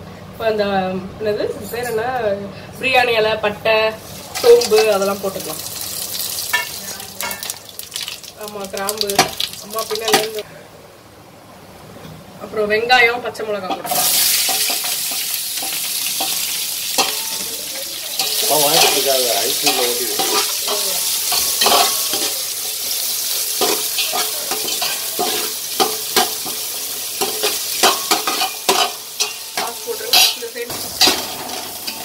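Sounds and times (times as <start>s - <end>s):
shallots sizzling in hot ghee: 4.0s - 10.4s, 13.9s - 32.0s
metal spoon scraping pot: 27.2s - 32.0s.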